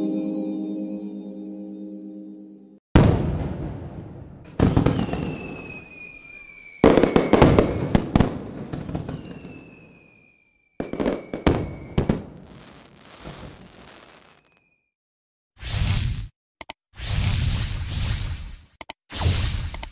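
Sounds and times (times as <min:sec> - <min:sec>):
fireworks bangs: 0:03.0 - 0:14.7
fireworks crackling: 0:04.5 - 0:14.6
descending firework whistles: 0:04.6 - 0:14.9.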